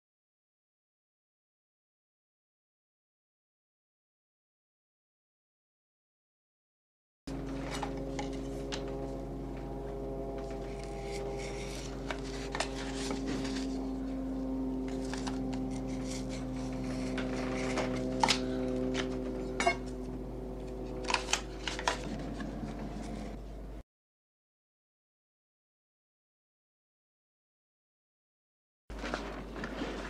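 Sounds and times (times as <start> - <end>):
steady hum: 7.3 - 23.8
knife scraping wooden board: 10.4 - 14.1, 14.9 - 20.0, 20.8 - 23.4.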